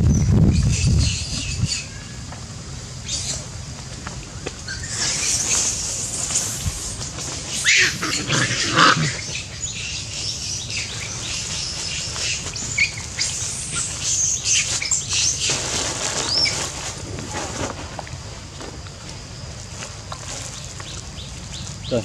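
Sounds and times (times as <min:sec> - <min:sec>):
monkeys squeaking and chirping: 0:04.7 - 0:09.4.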